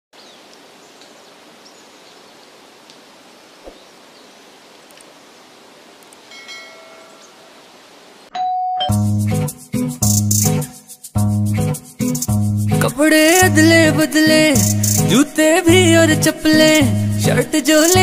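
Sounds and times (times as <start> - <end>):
outdoor background hiss: 0.2 - 18.0
guitar music: 8.9 - 18.0.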